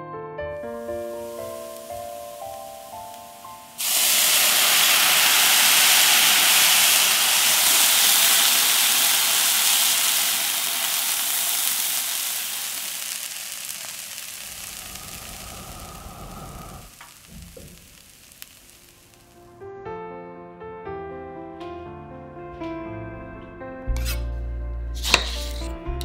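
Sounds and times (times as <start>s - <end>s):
water sizzling in hot pan: 0.6s - 19.6s.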